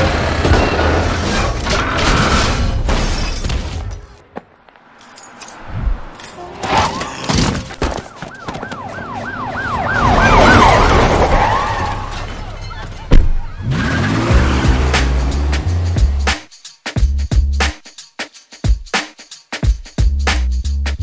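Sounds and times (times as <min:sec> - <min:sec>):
police siren yelping: 0:07.8 - 0:12.2.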